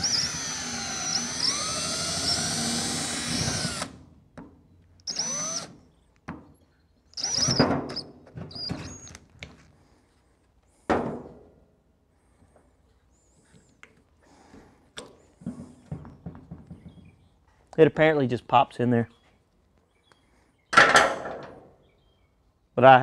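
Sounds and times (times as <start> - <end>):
cordless drill drilling plastic: 0.0 - 4.0, 5.0 - 5.8, 7.2 - 9.2.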